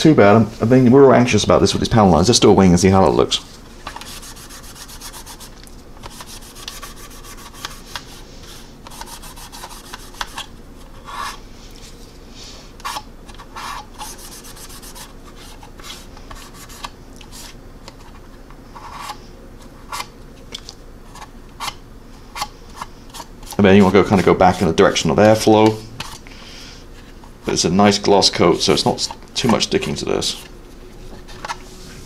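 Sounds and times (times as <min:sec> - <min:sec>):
paper towel rubbing on plastic: 0:03.9 - 0:05.5, 0:06.1 - 0:10.4, 0:13.5 - 0:17.6, 0:23.5 - 0:25.1.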